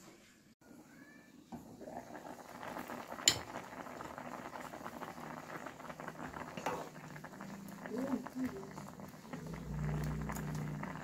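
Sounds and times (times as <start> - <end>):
water boiling in a saucepan: 0.6 - 11.0.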